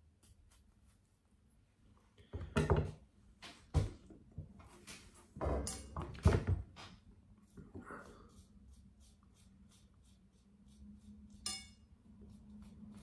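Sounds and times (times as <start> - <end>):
knife cutting watermelon rind: 8.0 - 13.0.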